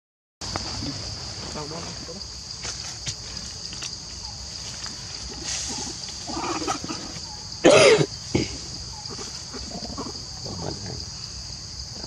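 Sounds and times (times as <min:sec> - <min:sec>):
steady high-pitched hiss: 0:00.4 - 0:12.0
animal calls: 0:05.2 - 0:11.1.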